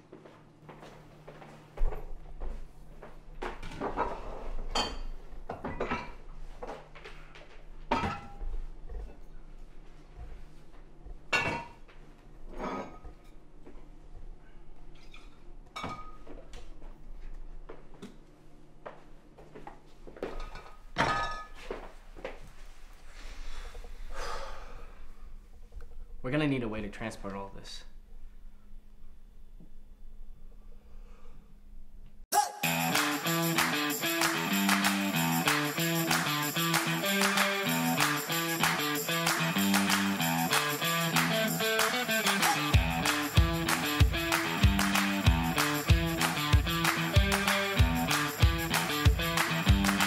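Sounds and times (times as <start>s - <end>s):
glass bottles clinking and knocking: 4.7s - 6.2s, 20.4s - 21.6s.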